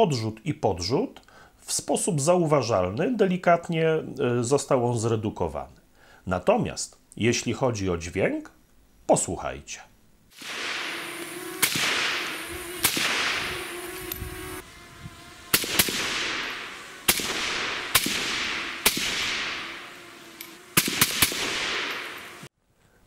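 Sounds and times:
rifle shots with echo: 12.8s - 13.4s, 15.5s - 19.6s, 20.8s - 22.1s.

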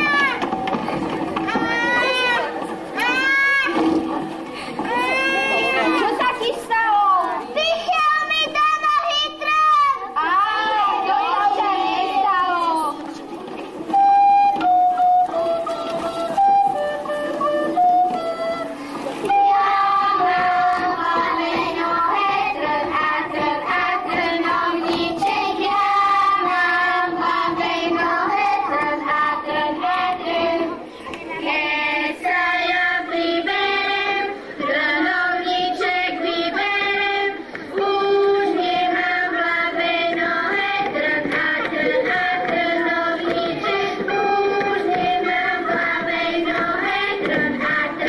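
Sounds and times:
children singing together: 10.0s - 48.0s.

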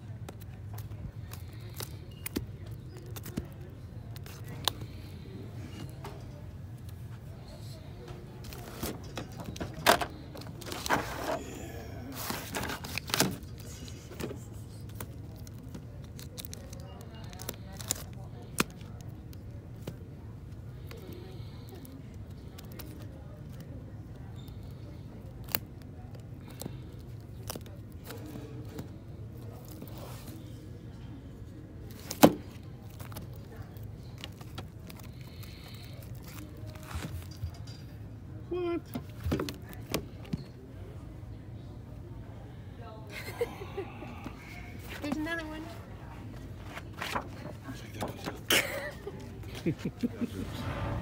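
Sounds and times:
plastic-wrapped records rustling: 8.4s - 11.4s, 12.1s - 18.8s.

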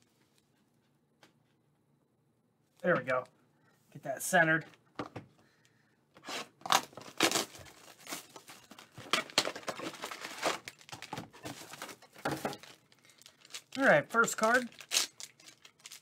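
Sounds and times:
plastic wrap ripping and crinkling: 6.3s - 16.0s.

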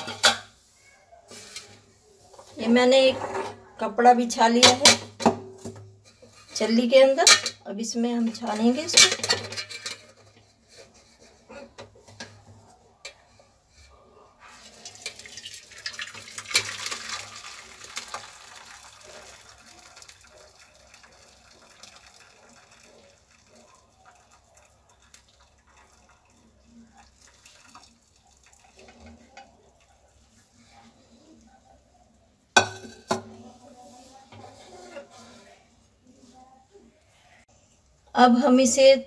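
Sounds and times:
water trickling and dripping: 14.7s - 30.2s.

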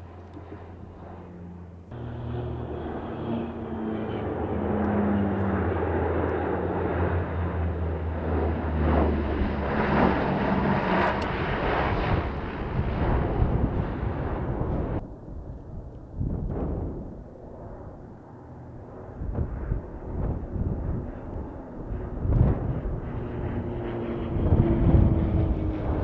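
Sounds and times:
propeller aircraft flying over: 0.0s - 26.0s.

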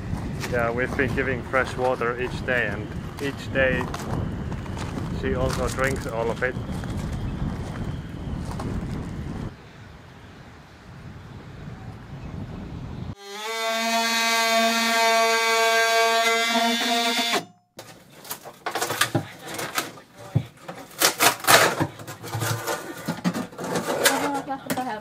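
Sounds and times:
oscillating multi-tool running: 13.2s - 17.4s
knocks and scrapes of debris: 17.8s - 25.0s.

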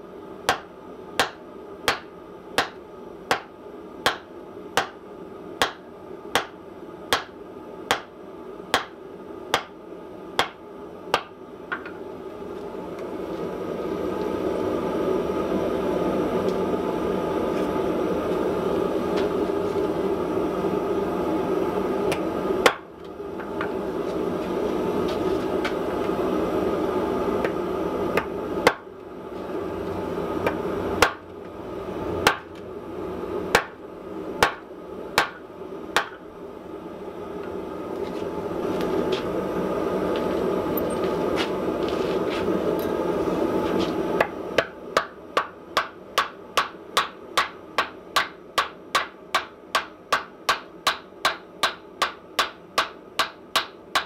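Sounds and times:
hammer striking hot metal on anvil: 0.5s - 5.0s, 5.6s - 5.8s, 6.4s - 8.1s, 8.7s - 9.8s, 10.4s - 11.3s, 32.2s - 32.5s, 33.5s - 33.8s, 34.4s - 34.6s, 35.2s - 35.4s, 44.2s - 54.0s.

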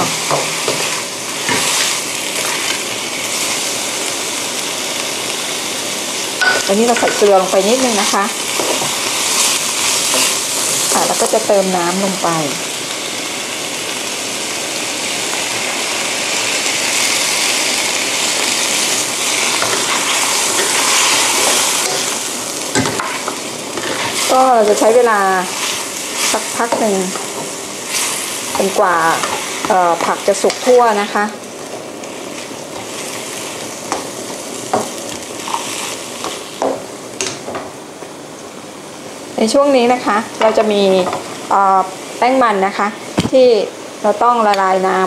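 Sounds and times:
spatula scraping and knocking pan: 0.0s - 1.8s
hissing sizzle: 0.0s - 45.0s.

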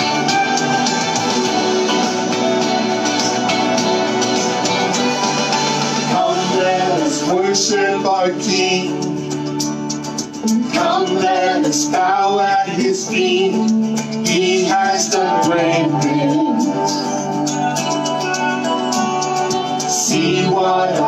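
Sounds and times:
electric guitar: 0.0s - 21.0s
man and woman singing: 6.1s - 9.2s, 10.6s - 17.3s, 19.9s - 21.0s.

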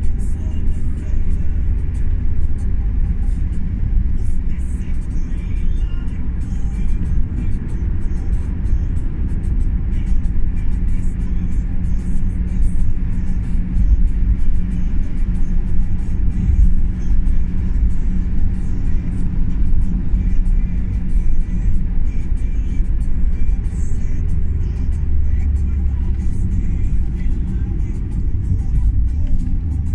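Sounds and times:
car engine and tyres rumbling: 0.0s - 29.9s
music playing: 0.0s - 29.9s.

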